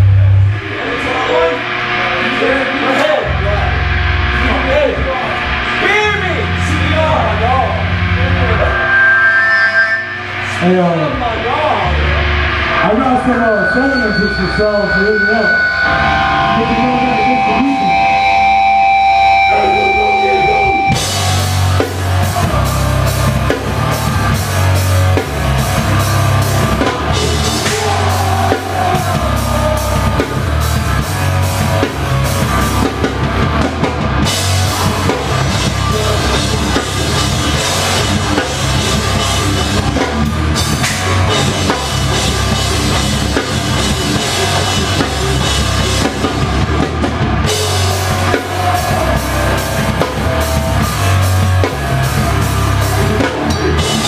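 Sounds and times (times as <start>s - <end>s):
steady low bass: 0.0s - 9.0s, 10.2s - 54.0s
live rock band playing: 0.0s - 54.0s
drum kit with cymbal crashes: 11.3s - 54.0s.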